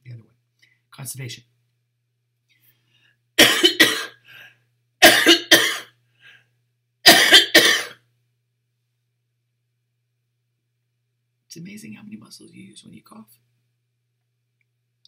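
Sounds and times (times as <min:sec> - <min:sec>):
woman coughing: 0:03.4 - 0:04.2, 0:05.0 - 0:05.9, 0:07.1 - 0:08.0.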